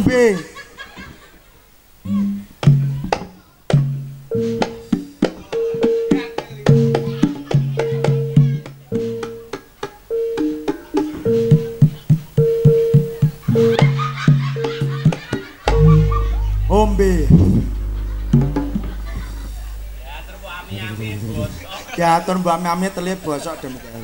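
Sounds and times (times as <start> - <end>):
sharp drum strokes: 15.7 - 21.3
short pitched notes: 15.7 - 21.5.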